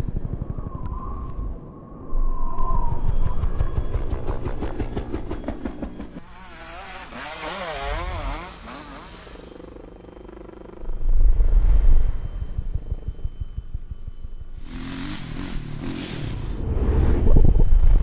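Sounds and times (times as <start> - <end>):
dirt bike engines revving: 6.2 - 11.0.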